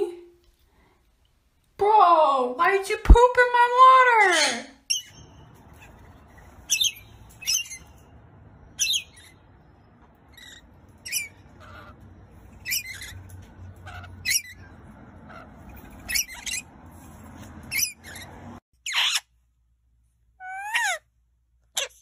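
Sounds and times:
parrots screeching shrilly: 0:04.3 - 0:08.0, 0:08.8 - 0:09.4, 0:10.3 - 0:16.7, 0:17.6 - 0:19.3, 0:20.4 - 0:21.0.

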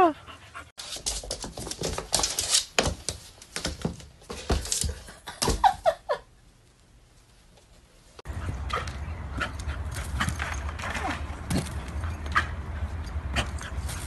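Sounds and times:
cat paws skittering on floor: 0:00.8 - 0:05.1.

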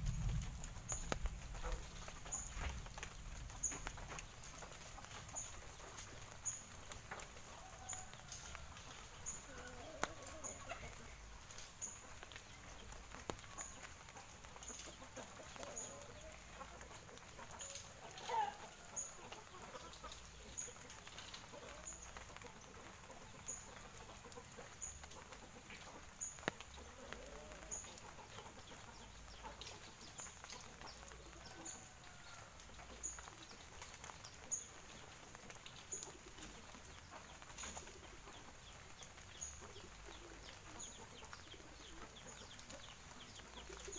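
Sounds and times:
chickens clucking: 0:00.7 - 0:43.9.

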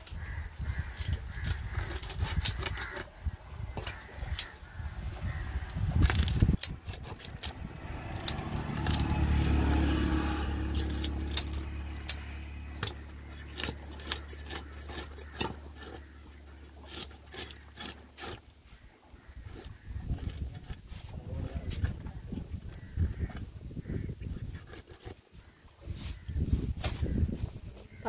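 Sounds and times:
vehicle engine running: 0:07.2 - 0:14.7.

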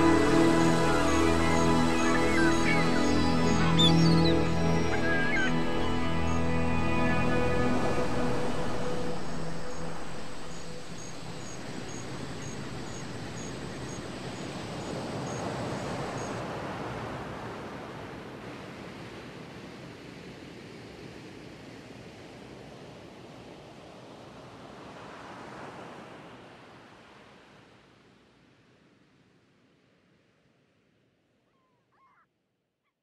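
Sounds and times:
faint high chirp: 0:00.0 - 0:07.2
background music: 0:00.0 - 0:11.2
rushing outdoor ambience: 0:00.0 - 0:28.3.

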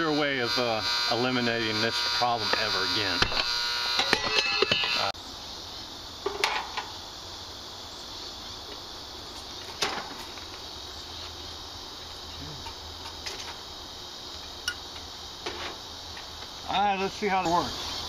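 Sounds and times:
contactor buzzing: 0:00.0 - 0:05.2.

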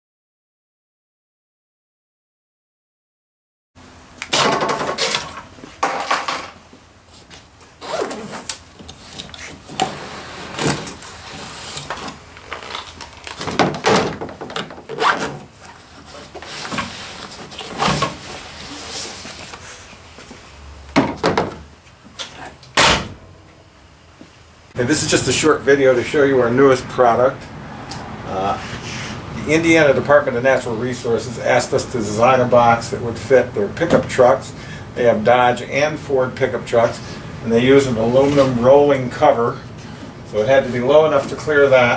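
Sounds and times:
gear scraping in metal locker: 0:09.4 - 0:12.2.

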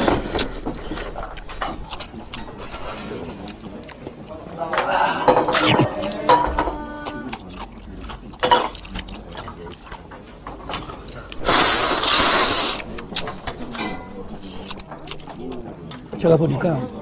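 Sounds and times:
loud hissing noodle slurp: 0:11.4 - 0:13.0.

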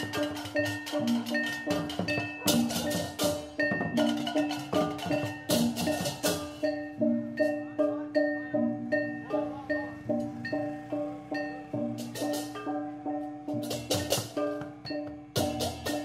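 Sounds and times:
tuned struck notes: 0:00.0 - 0:16.0.

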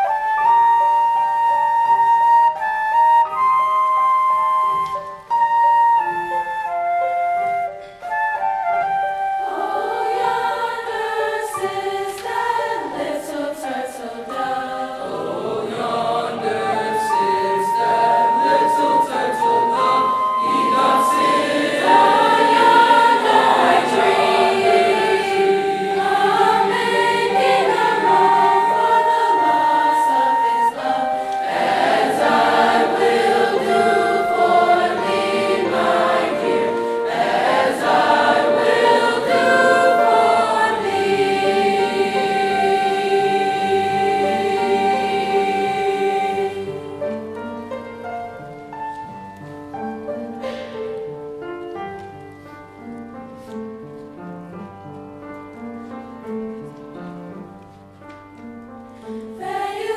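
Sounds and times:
flute holding long notes: 0:00.0 - 0:47.7
mixed choir singing: 0:09.4 - 0:48.9, 0:59.1 - 0:59.9.

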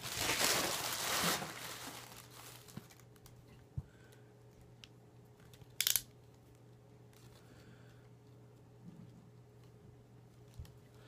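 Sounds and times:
plastic packaging crinkling: 0:00.0 - 0:03.3.

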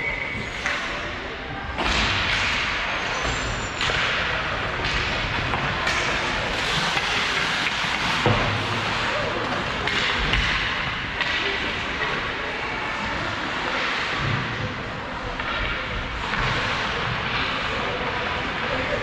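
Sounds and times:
loud rushing rink noise: 0:00.0 - 0:19.0
hockey sticks and puck knocking: 0:01.8 - 0:12.0.

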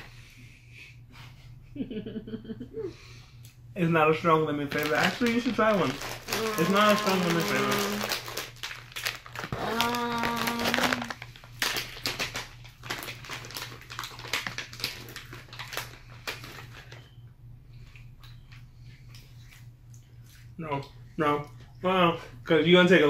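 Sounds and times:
plastic pouch crinkling: 0:04.7 - 0:17.0
person humming: 0:06.3 - 0:08.1, 0:09.5 - 0:11.1.

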